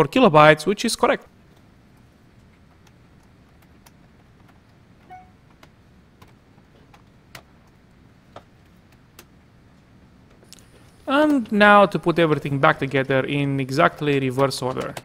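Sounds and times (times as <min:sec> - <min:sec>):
brief ringing ping: 0:05.1 - 0:05.4
light clicks and taps: 0:12.3 - 0:15.0.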